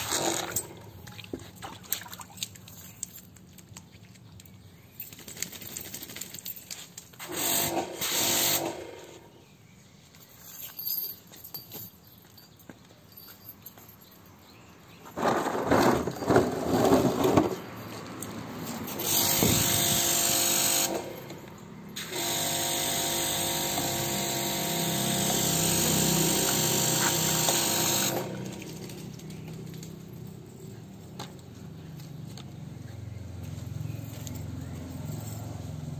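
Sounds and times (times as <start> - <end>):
blow dryer running: 7.3 - 9.1, 19.0 - 21.2, 22.0 - 28.5
loud scuffling: 15.0 - 19.6.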